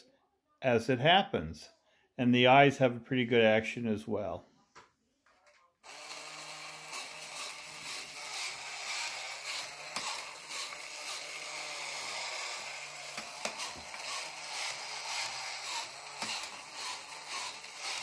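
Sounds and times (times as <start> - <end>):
toy motor and gears whirring: 5.8 - 18.0.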